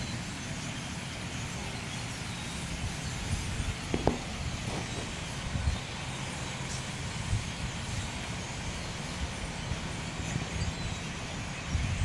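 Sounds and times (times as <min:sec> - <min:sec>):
far-off traffic: 0:00.0 - 0:12.0
wind on microphone: 0:02.6 - 0:12.0.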